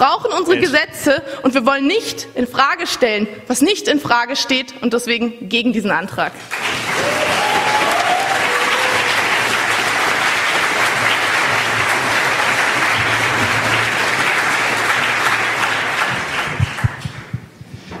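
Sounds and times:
audience applauding: 0:06.4 - 0:17.3.

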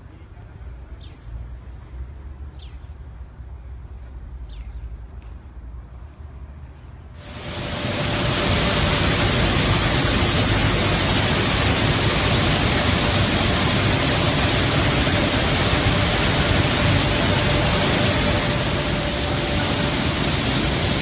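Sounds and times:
mill machinery running: 0:07.2 - 0:21.0.

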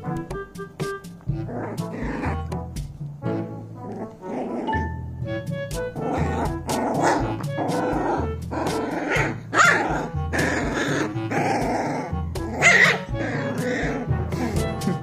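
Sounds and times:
music with a steady beat: 0:00.0 - 0:03.6, 0:04.8 - 0:15.0
puppy barking: 0:06.0 - 0:14.1.

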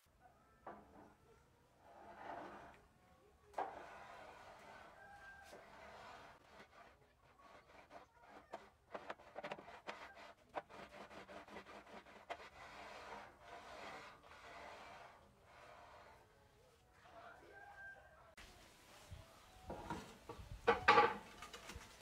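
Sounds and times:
steel plate rubbing on rails: 0:01.8 - 0:02.9, 0:03.6 - 0:16.4.

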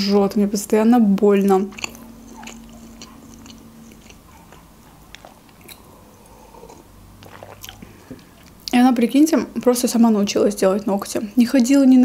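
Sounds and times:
low steady hum: 0:00.0 - 0:12.0
chewing mouth clicks: 0:01.5 - 0:08.8
sipping and swallowing: 0:01.7 - 0:08.8.

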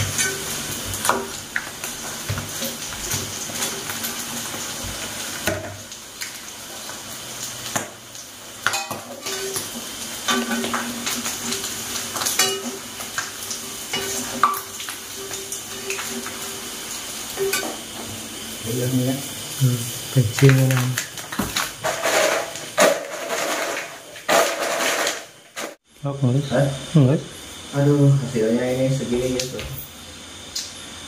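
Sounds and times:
grasshoppers sizzling in oil: 0:00.0 - 0:31.0
utensil scraping a pan: 0:21.8 - 0:25.8.

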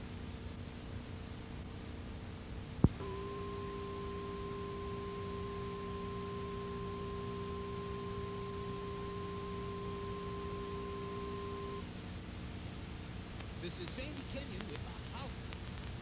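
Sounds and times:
low electrical hum: 0:00.0 - 0:16.0
two-pitch electronic test tone: 0:03.0 - 0:11.8.

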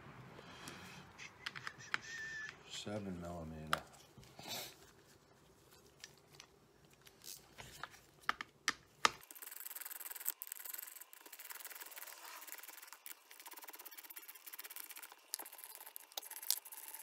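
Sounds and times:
fast scratchy rubbing: 0:09.2 - 0:17.0.

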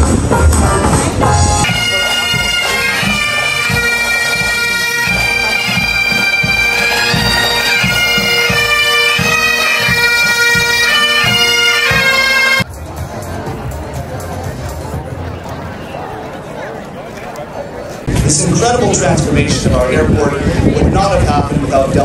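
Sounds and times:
bagpipe melody over drone: 0:01.6 - 0:12.7.

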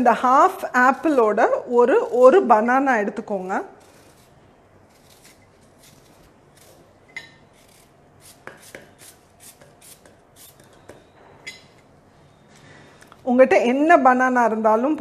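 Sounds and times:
knife slicing apple: 0:03.8 - 0:11.1.

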